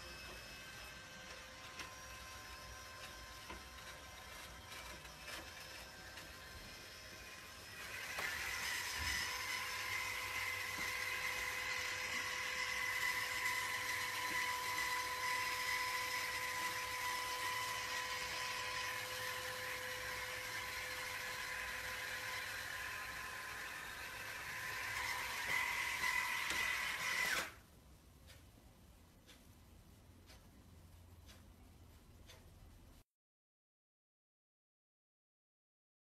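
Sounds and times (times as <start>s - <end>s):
electric motor whirring: 0.0s - 27.6s.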